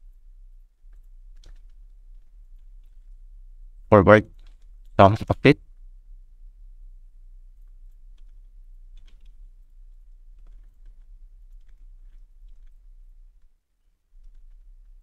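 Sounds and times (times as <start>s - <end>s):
steady low hum: 0.0s - 15.0s
keyboard and mouse clicks: 0.9s - 3.1s, 7.9s - 9.4s, 10.3s - 12.8s, 13.4s - 15.0s.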